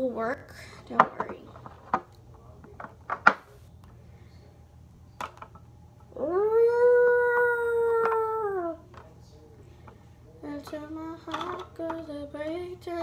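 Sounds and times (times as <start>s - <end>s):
person imitating wolf howl: 6.2s - 8.8s.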